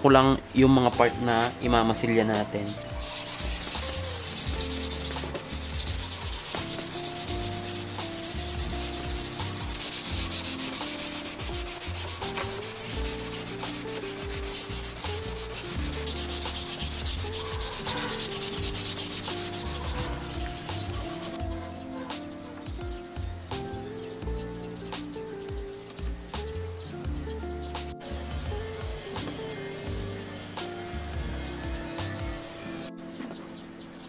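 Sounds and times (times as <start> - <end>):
sandpaper rubbing on plastic: 3.0 - 21.4.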